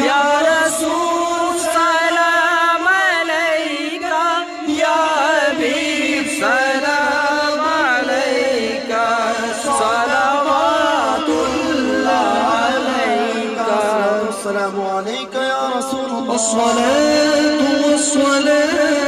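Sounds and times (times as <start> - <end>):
men singing devotional song: 0.0 - 19.0.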